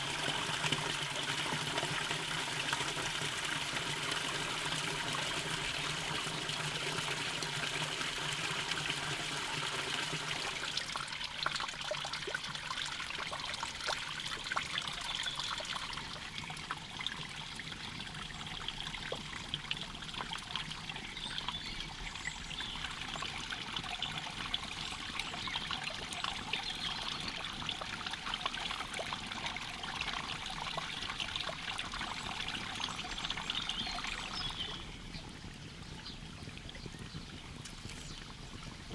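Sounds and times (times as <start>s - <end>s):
stream trickling and splashing: 0.0s - 38.9s
small crackles and clicks: 36.8s - 38.9s.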